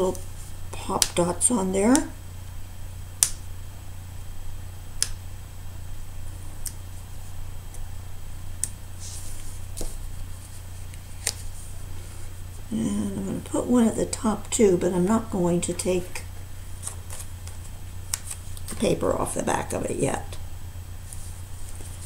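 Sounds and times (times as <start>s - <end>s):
steady low hum: 0.0s - 22.0s
faint paper rustle: 9.0s - 12.4s, 16.8s - 18.8s, 21.0s - 22.0s.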